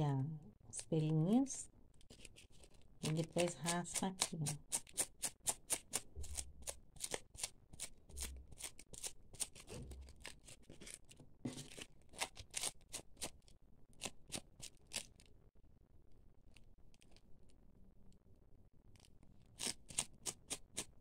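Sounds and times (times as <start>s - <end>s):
velcro scraping over wool yarn: 2.0s - 15.3s.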